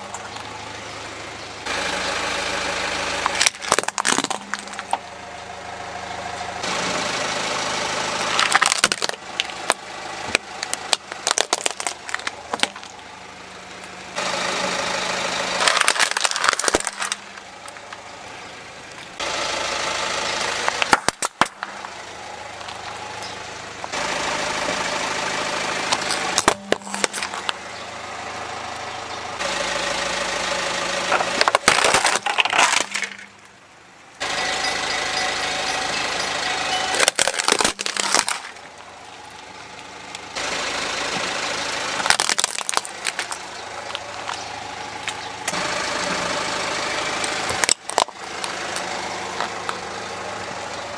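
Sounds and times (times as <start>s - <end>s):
car engine idling: 0.0s - 50.9s
plastic toys cracking and crunching: 3.2s - 5.0s, 8.2s - 13.0s, 15.5s - 18.0s, 20.7s - 21.9s, 25.9s - 27.6s, 31.1s - 33.6s, 36.9s - 39.5s, 42.0s - 45.6s, 47.2s - 49.8s.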